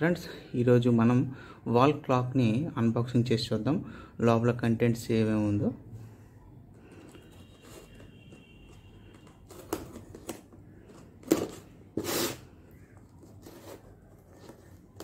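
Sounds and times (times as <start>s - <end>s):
tape and cardboard ripping: 11.2s - 12.5s.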